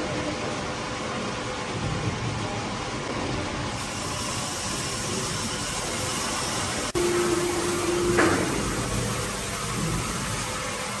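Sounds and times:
steady whine: 0:00.0 - 0:11.0
sawmill machinery noise: 0:03.7 - 0:11.0.

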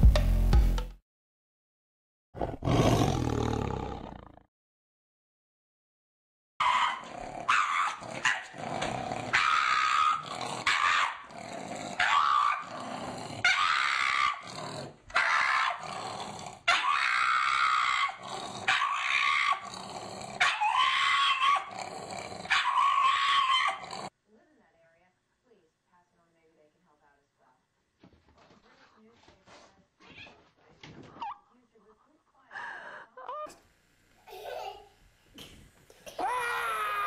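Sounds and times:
dog growling barks: 0:06.6 - 0:24.1.

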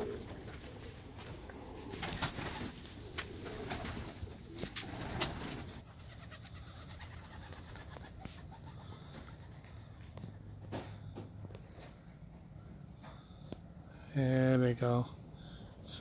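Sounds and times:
pigeons cooing: 0:00.0 - 0:10.3.

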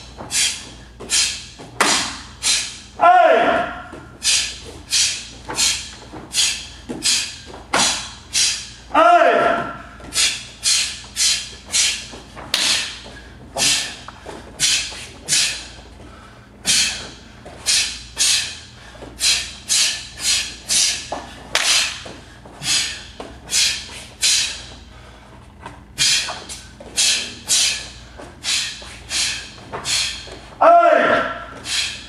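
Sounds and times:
forceful exhalations: 0:00.2 - 0:02.9, 0:03.8 - 0:08.9, 0:09.8 - 0:25.4, 0:26.0 - 0:30.5, 0:31.3 - 0:32.0.

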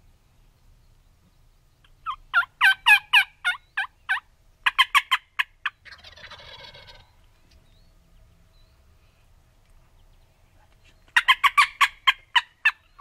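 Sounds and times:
turkey yelping: 0:01.9 - 0:07.2, 0:11.2 - 0:13.0
turkey rattling gobble: 0:02.0 - 0:07.2, 0:11.1 - 0:13.0.

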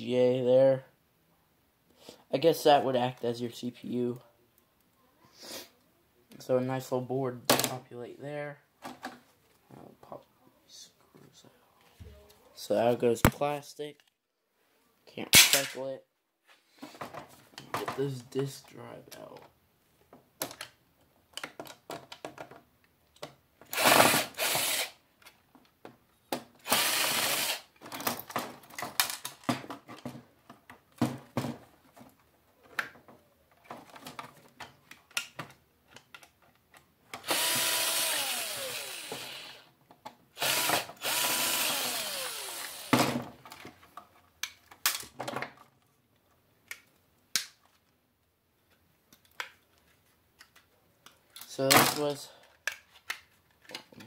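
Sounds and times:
screw gun whining: 0:23.7 - 0:25.0, 0:26.6 - 0:27.8, 0:37.1 - 0:39.7, 0:40.3 - 0:43.1.

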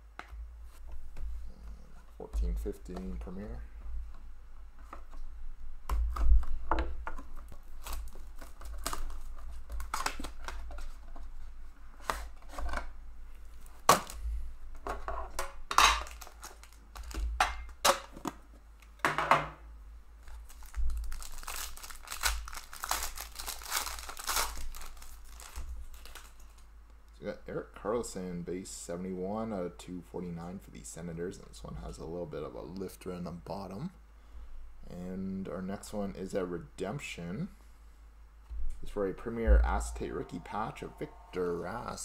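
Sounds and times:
plastic wrapping crinkling: 0:06.4 - 0:11.4, 0:16.0 - 0:17.3, 0:20.2 - 0:26.7
plastic wrap tearing: 0:07.4 - 0:10.9, 0:16.0 - 0:17.2, 0:20.2 - 0:26.7.

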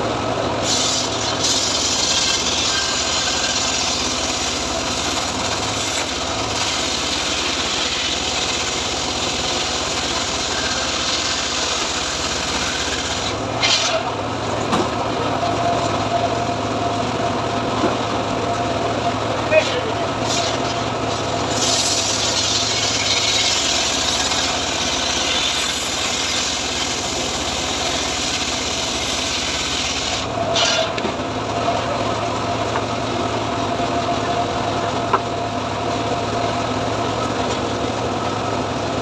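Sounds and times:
engine drone: 0:00.0 - 0:39.0
saw blade spinning free: 0:00.6 - 0:14.1, 0:21.5 - 0:31.0
circular saw ripping a log: 0:00.6 - 0:14.2, 0:19.6 - 0:31.1.

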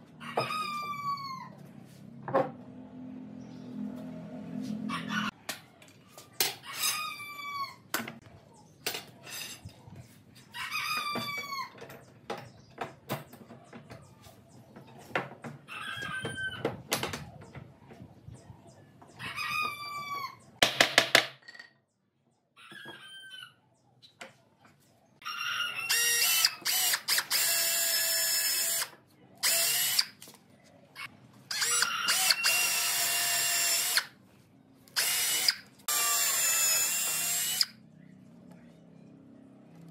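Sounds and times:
rooster crowing: 0:00.2 - 0:01.5, 0:04.8 - 0:05.4, 0:25.2 - 0:26.2
cordless drill boring into wood: 0:25.9 - 0:30.1, 0:31.5 - 0:34.1, 0:35.0 - 0:37.8.

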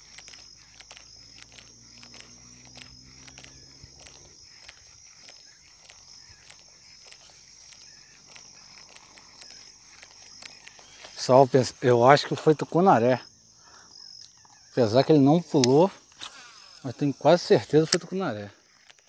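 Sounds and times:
faint clicks: 0:00.0 - 0:11.3
insects buzzing: 0:00.0 - 0:19.0.

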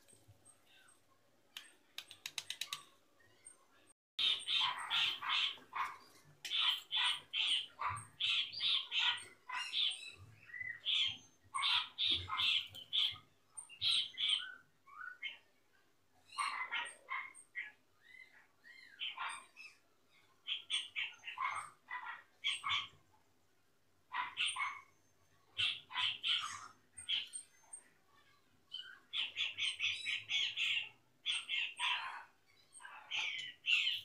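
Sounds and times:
birds chirping: 0:00.0 - 0:23.3, 0:24.0 - 0:34.0
sharp clicks: 0:01.5 - 0:02.9.

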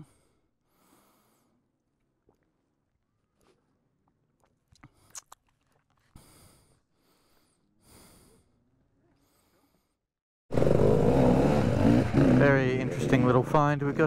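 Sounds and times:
soft breaths: 0:00.0 - 0:02.4, 0:05.9 - 0:10.1
dirt bike engine running: 0:10.5 - 0:14.0.

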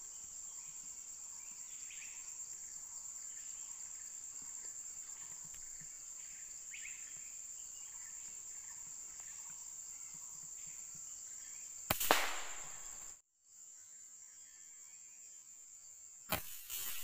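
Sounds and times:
insects buzzing: 0:00.0 - 0:17.0
gunshot: 0:11.9 - 0:13.1, 0:16.3 - 0:17.0.

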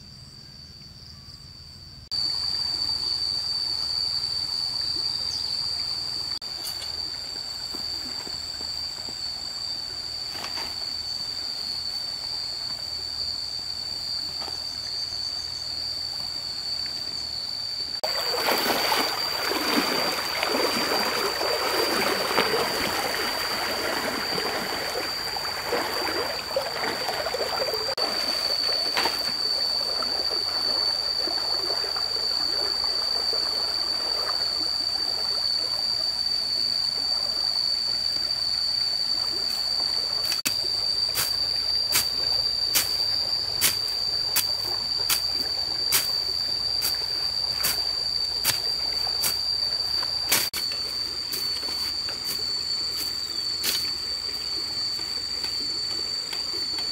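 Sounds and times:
water running and splashing: 0:18.0 - 0:35.4.

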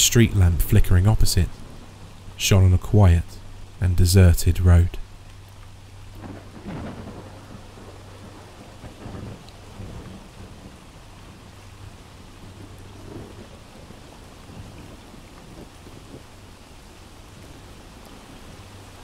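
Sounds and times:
steady rain: 0:00.0 - 0:19.0
thunder rumbling: 0:06.1 - 0:16.4.

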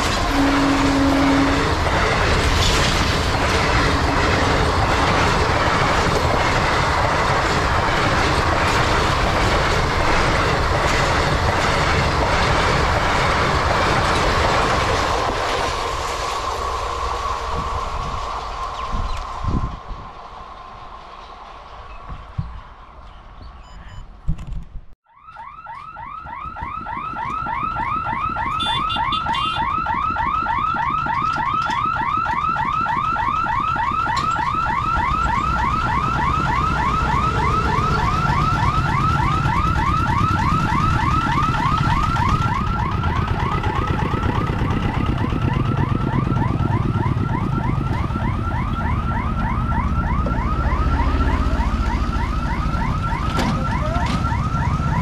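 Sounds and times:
warning hooter warbling: 0:25.1 - 0:55.0.

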